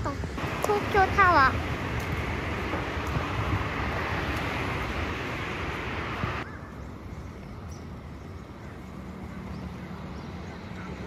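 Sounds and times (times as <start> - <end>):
wind on microphone: 0.0 - 8.8.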